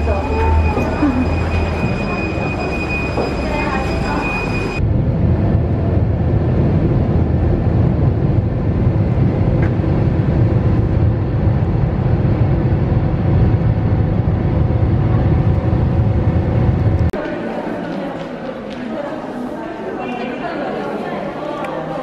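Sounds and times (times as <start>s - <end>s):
jet engine roar in cabin: 0.0s - 17.2s.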